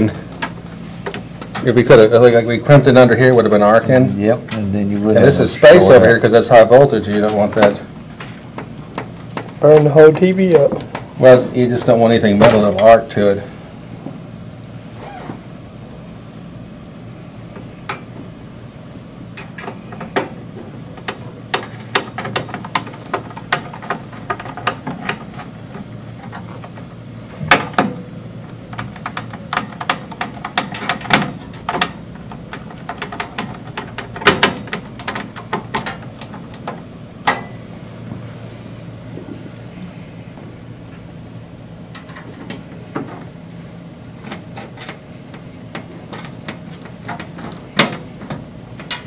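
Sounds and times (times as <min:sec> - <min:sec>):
metal parts clicking and tapping: 0:28.7 - 0:37.5, 0:44.2 - 0:49.0.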